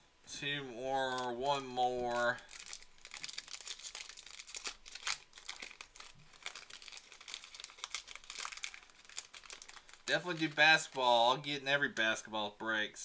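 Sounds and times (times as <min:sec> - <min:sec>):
wrappers tearing and crinkling: 0:01.0 - 0:11.2.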